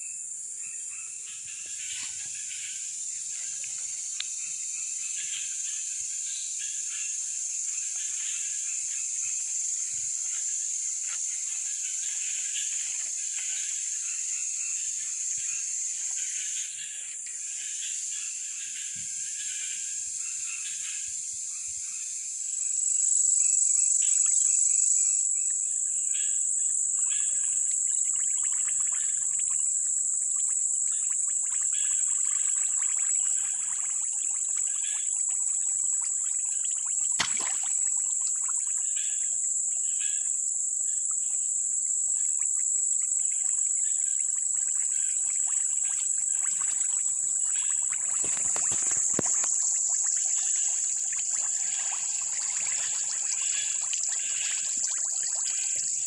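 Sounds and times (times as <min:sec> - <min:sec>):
high-pitched insect drone: 0:00.0 - 0:56.0
short insect chirps: 0:00.0 - 0:56.0
sharp click: 0:37.2 - 0:37.6.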